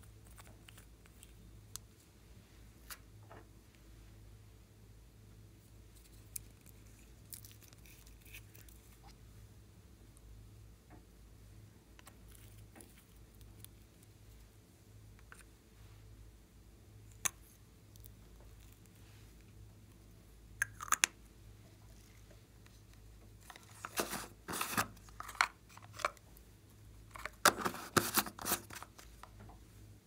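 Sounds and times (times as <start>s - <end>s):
plastic caps clicking: 20.6s - 21.2s
plastic crackling and scraping: 23.4s - 26.3s, 27.0s - 29.5s.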